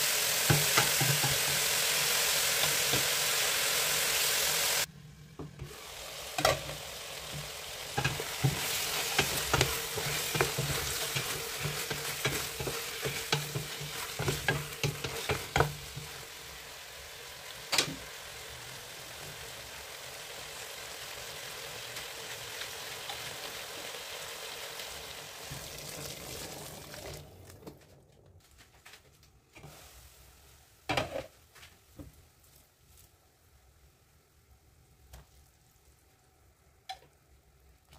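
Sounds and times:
food sizzling in a pot: 0.0s - 27.4s, 29.6s - 37.9s.

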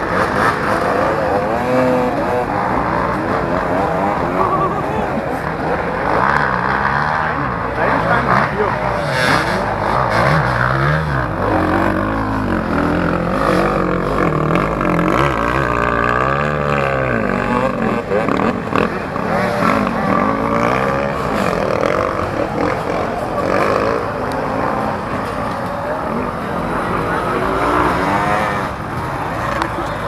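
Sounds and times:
dirt bike engines revving: 0.0s - 30.0s.

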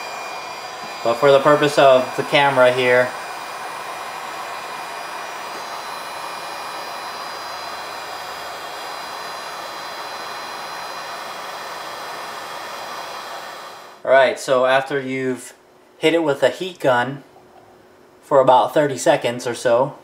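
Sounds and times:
heat gun blowing hot air: 0.0s - 14.0s.

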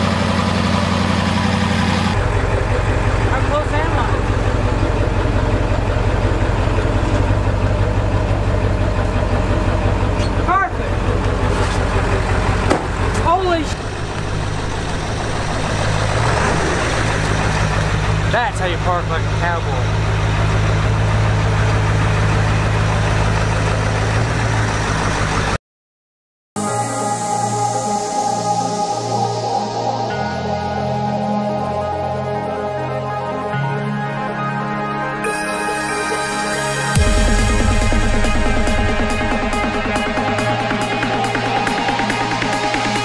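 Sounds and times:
truck engine idling: 0.0s - 25.6s, 35.8s - 43.0s
music: 26.6s - 43.0s.

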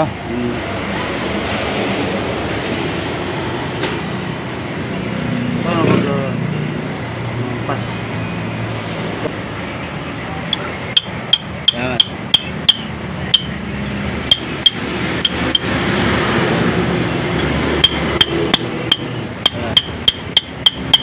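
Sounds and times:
hammer tapping metal with ring: 3.8s - 4.4s, 11.0s - 13.6s, 17.8s - 21.0s.

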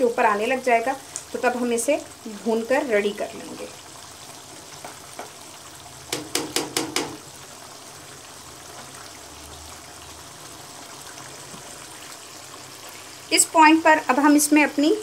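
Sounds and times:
gravy simmering with bubbling hiss: 0.0s - 15.0s
spatula tapping against pan: 4.8s - 5.4s, 6.1s - 7.2s.

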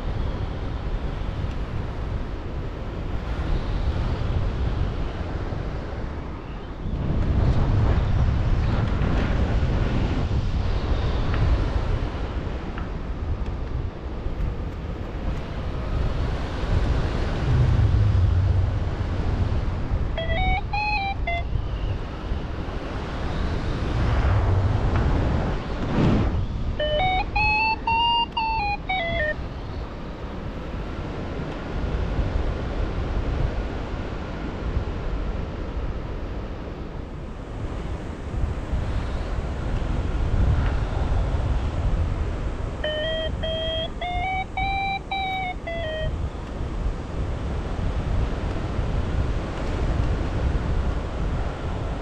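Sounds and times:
wind rushing over microphone: 0.0s - 52.0s
variometer beeping: 20.2s - 21.8s, 26.8s - 29.4s, 42.8s - 46.2s.

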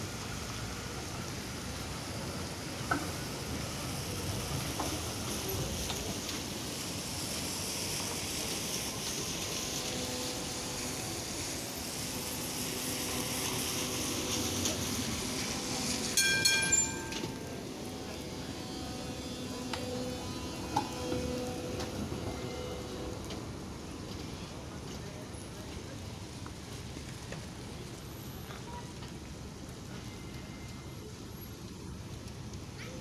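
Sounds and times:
tram rolling on wet track: 0.0s - 33.0s
high-pitched ringing tone: 16.2s - 17.6s.

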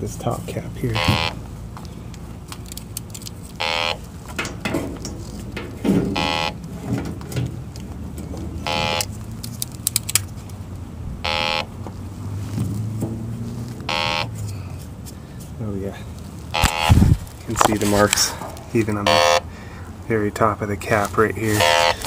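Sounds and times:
leak detector high beeps: 1.0s - 1.4s, 3.6s - 4.0s, 6.2s - 6.6s, 8.7s - 9.1s, 11.2s - 11.7s, 13.9s - 14.3s, 16.6s - 17.1s, 19.0s - 19.4s, 21.6s - 22.0s.

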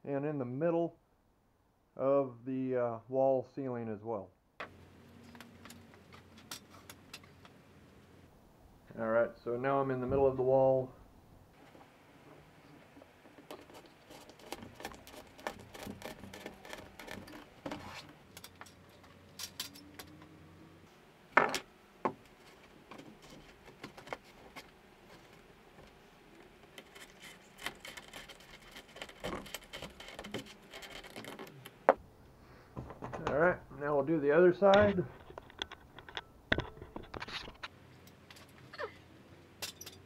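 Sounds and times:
skewers scratching through foam: 13.4s - 18.2s, 26.4s - 31.9s.

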